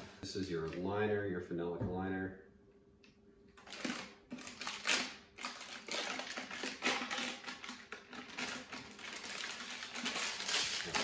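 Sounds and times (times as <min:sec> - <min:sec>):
foil wrapping crinkling: 0:03.6 - 0:11.0.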